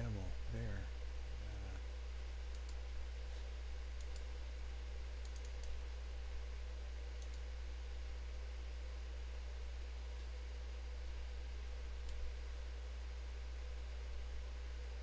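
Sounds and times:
low electrical hum: 0.0s - 15.0s
computer mouse clicking: 2.5s - 2.8s, 4.0s - 4.3s, 5.2s - 5.8s, 7.2s - 7.5s, 12.0s - 12.2s.

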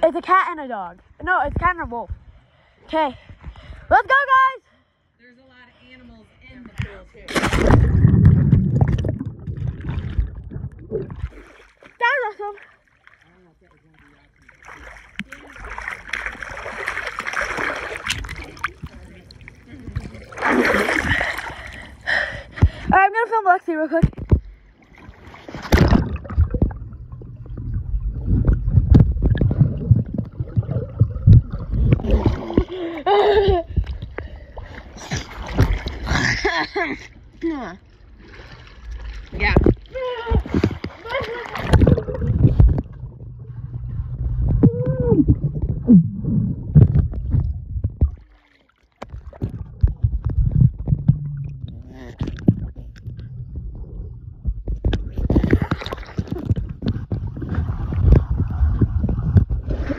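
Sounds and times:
muffled underwater sloshing: 6.4s - 59.9s
pool water splashing: 6.9s - 23.5s, 24.6s - 59.9s
muffled gliding hum: 25.7s - 32.2s, 40.7s - 48.2s, 49.3s - 59.9s.

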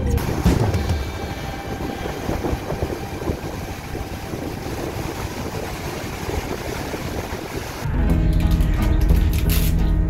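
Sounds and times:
water churning along hull: 0.0s - 7.9s
wind: 0.0s - 7.9s
low rumble: 0.0s - 8.2s.

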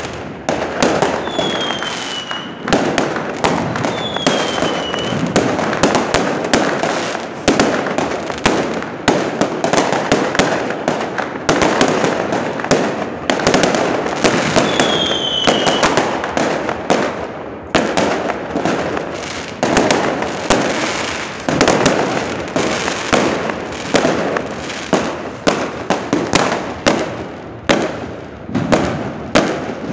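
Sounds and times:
fireworks bangs and crackling: 0.0s - 29.9s
firework whistle falling: 1.1s - 2.7s, 3.8s - 5.4s, 14.4s - 16.0s.

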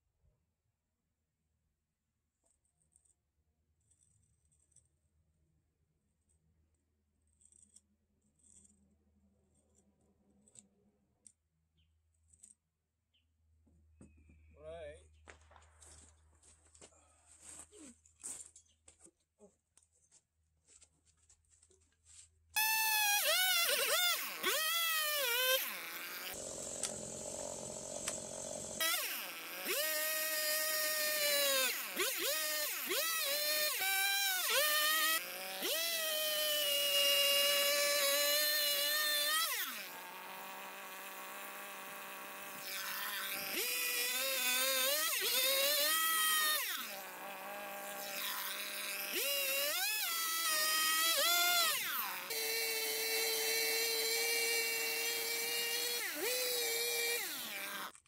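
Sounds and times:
chainsaw cutting log: 22.6s - 58.0s.

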